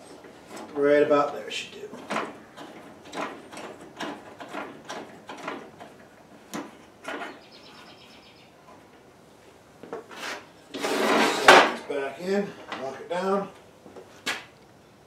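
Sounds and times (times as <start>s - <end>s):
saw crank clicking and creaking: 0.5s - 7.2s.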